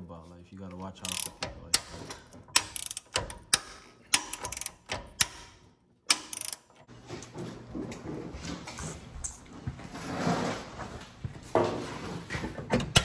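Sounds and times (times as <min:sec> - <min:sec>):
hand ratchet clicking: 0:01.0 - 0:06.9.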